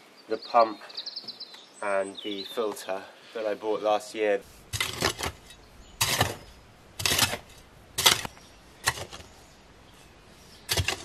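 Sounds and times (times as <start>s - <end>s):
hoe striking soil: 4.7s - 9.4s, 10.6s - 11.0s.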